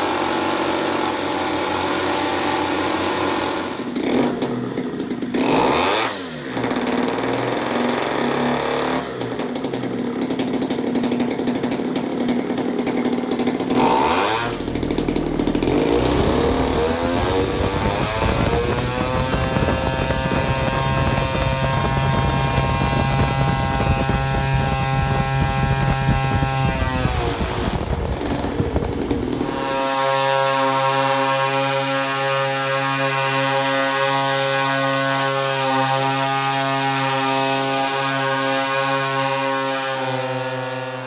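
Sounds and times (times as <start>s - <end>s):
two-stroke engines revving: 0.0s - 41.0s
steady held tone: 11.6s - 30.2s.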